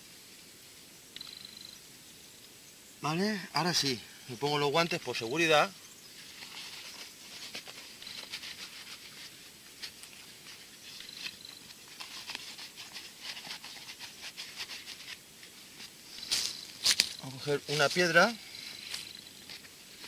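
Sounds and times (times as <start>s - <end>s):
cloth gloves rustling and clicking: 6.2s - 20.0s.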